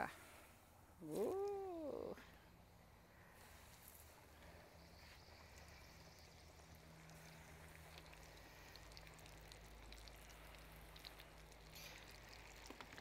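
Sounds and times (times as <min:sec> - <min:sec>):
small crackles: 0:03.4 - 0:13.0
chicken deep-frying in oil: 0:04.8 - 0:13.0.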